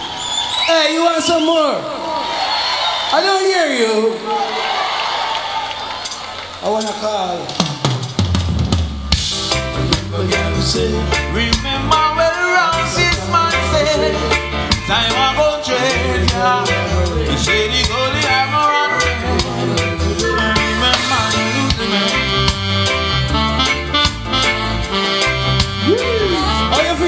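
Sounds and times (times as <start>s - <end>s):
reggae music: 6.0s - 27.0s
heavy bass line: 8.5s - 27.0s.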